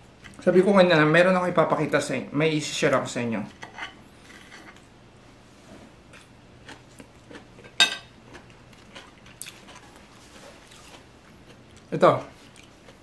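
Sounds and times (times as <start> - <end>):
soft chewing: 6.1 - 13.0
fork clinking against plate: 7.8 - 8.1.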